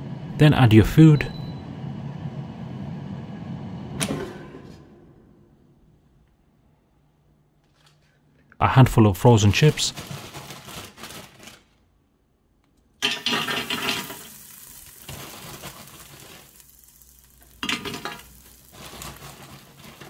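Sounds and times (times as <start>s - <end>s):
frozen chips rattling in basket: 9.6s - 11.8s, 13.0s - 20.0s.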